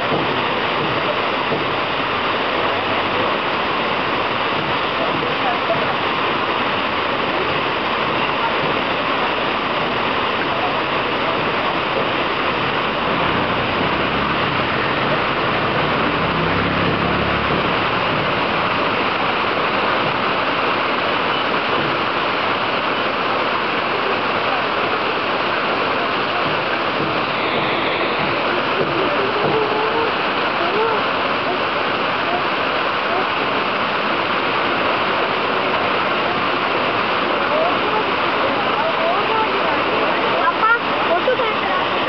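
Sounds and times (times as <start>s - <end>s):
waterfall rushing onto rocks: 0.0s - 42.0s.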